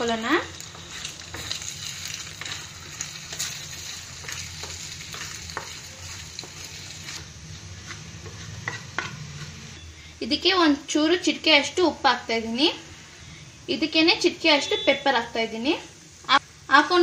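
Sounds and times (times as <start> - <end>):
wooden spatula scraping a pan: 0.0 - 9.8
eggs sizzling in oil: 0.0 - 17.0
spatula knocking on pan: 4.2 - 6.7, 7.8 - 9.2.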